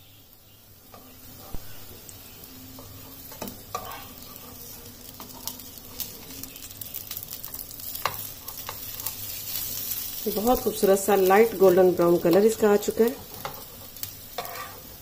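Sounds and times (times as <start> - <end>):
pancakes sizzling in oil: 0.0 - 15.0
metal spatula scraping pan: 2.8 - 6.3, 13.2 - 15.0.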